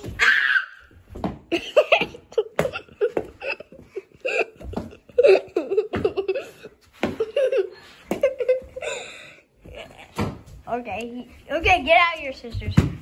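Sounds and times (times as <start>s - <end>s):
children giggling and laughing: 1.5s - 9.8s.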